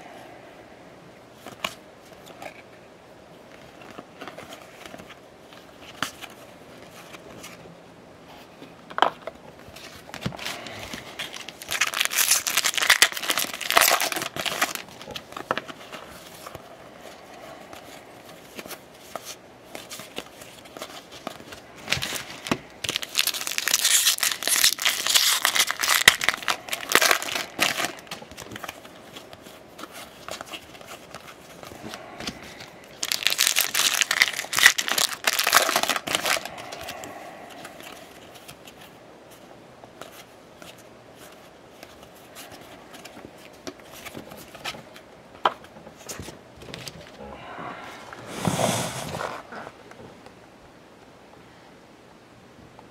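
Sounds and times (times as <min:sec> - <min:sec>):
cards rustling and crinkling: 0:01.3 - 0:02.8, 0:03.4 - 0:50.1
foil wrapper tearing: 0:10.6 - 0:15.7, 0:21.8 - 0:29.2, 0:32.9 - 0:37.1.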